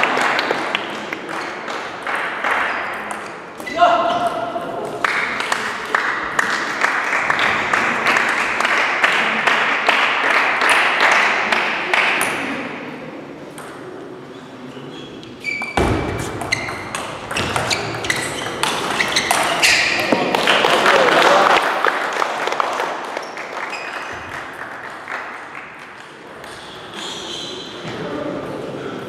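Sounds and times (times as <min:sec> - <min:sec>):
reverberant hall hum: 0:00.0 - 0:29.0
table tennis balls clicking: 0:16.3 - 0:20.3.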